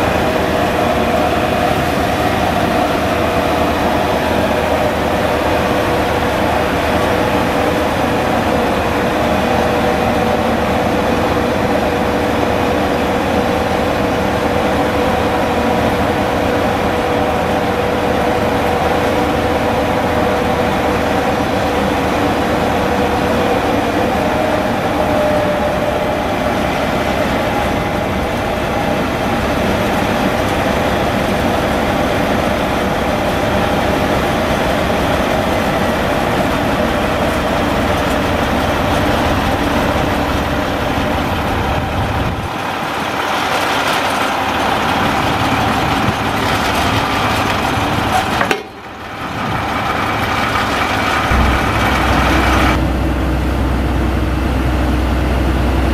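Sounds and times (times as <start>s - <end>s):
truck engine drone: 0.0s - 55.9s
hydraulic whine: 44.4s - 55.9s.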